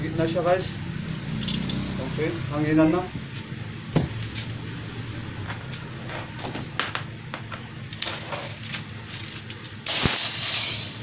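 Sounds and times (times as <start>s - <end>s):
compressed air hissing: 9.8s - 11.0s.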